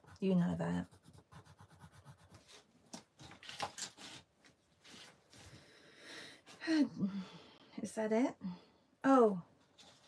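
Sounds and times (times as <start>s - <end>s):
paper handling rustles: 2.4s - 5.4s.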